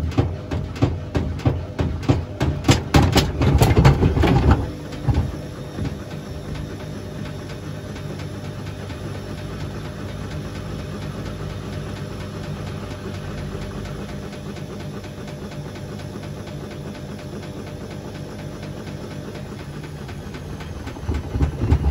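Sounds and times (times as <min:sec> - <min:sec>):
washing machine motor hum: 0:00.0 - 0:21.9.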